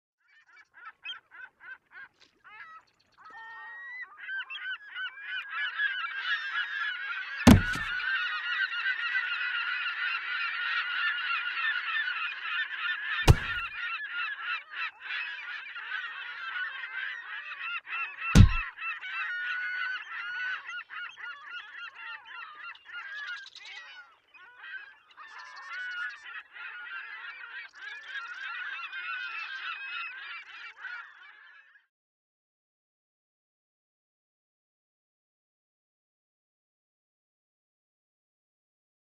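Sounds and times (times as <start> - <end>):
flock of birds calling: 0.5 - 31.8
sharp thuds: 7.5 - 8.0, 13.3 - 13.6, 18.4 - 18.6.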